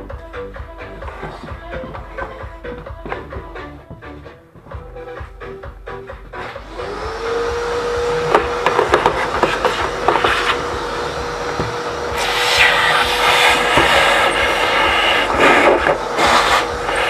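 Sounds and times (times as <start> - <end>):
vacuum cleaner running: 6.2 - 17.0.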